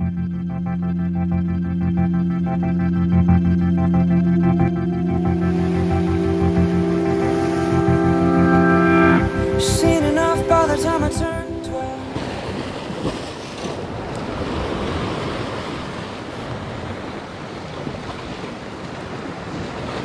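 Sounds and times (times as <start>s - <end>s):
background music: 0.0s - 12.6s
surf washing over rocks: 9.2s - 20.0s.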